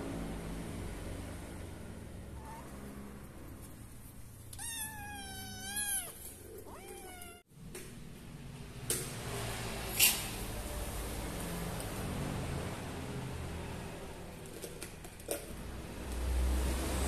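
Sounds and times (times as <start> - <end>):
kitten meowing: 4.5 - 7.5.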